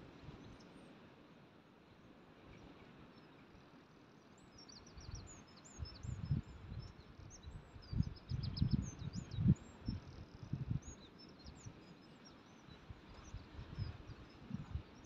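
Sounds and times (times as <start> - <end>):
small birds chirping: 2.5 - 15.0
wind buffeting microphone: 5.8 - 11.6, 12.8 - 15.0.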